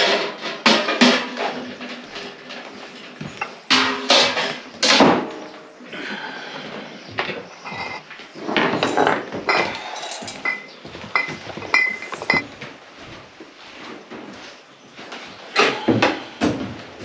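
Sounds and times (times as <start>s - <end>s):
metal and glass kitchenware clanking: 7.7s - 12.5s.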